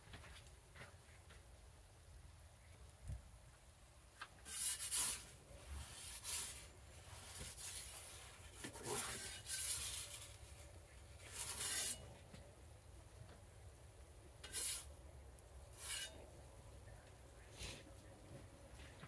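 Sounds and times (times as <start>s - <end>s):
metal peel scraping stone: 4.4s - 6.7s, 7.3s - 12.2s, 14.4s - 15.0s, 15.7s - 16.3s.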